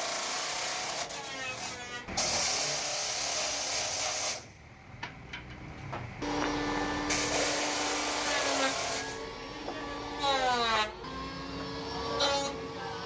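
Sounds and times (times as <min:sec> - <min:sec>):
electric planer cutting wood: 0:06.2 - 0:13.0.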